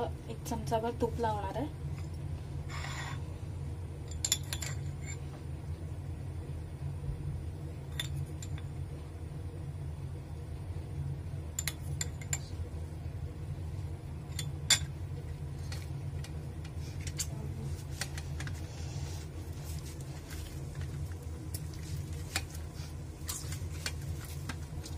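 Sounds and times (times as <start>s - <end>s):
steady low hum: 0.0s - 24.9s.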